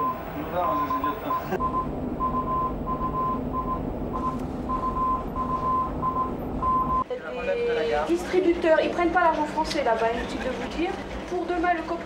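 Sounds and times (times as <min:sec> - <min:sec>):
low hum: 0:00.0 - 0:07.0
morse code beeps: 0:00.0 - 0:07.0.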